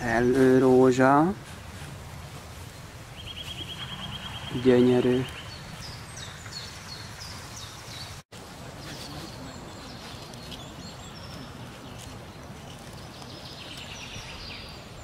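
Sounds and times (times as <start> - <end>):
birds chirping and whistling: 2.7 - 8.2, 8.8 - 15.0.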